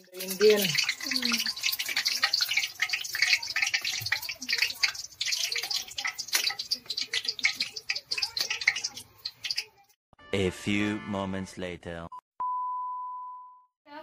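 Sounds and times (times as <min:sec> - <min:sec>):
hot oil sizzling and crackling: 0:00.0 - 0:09.9.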